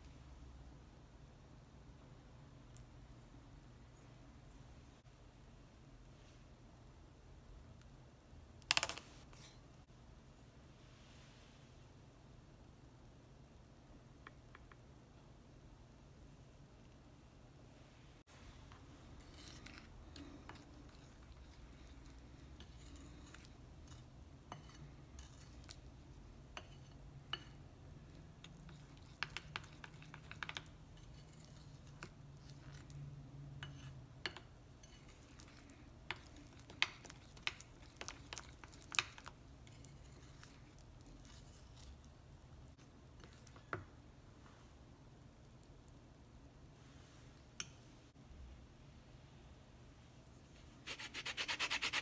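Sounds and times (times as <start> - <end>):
spoon scraping glass bowl: 19.2 - 25.8, 26.5 - 27.6, 28.5 - 33.0, 33.6 - 42.0.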